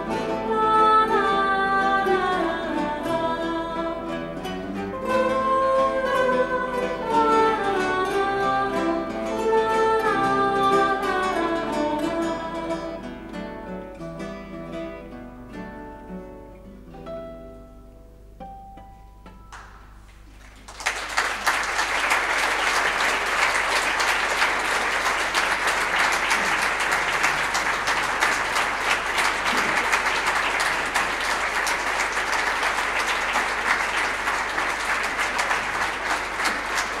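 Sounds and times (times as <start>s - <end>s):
audience applause: 20.2s - 37.0s.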